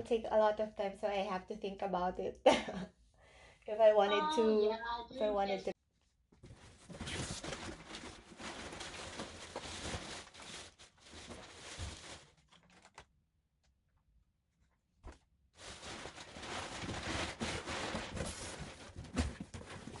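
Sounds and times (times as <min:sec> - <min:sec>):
plastic wrapping and cardboard rustling: 0:06.4 - 0:13.1, 0:15.6 - 0:20.0.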